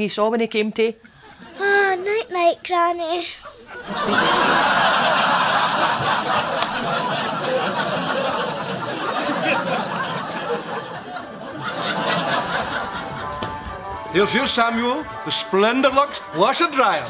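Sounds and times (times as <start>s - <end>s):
audience laughter: 3.5s - 14.4s.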